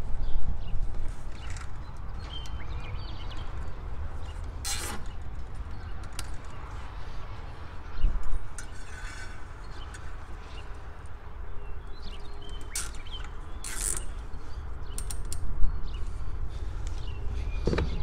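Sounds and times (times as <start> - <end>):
wind rumbling on microphone: 13.4 - 18.0
low bump: 17.6 - 18.0.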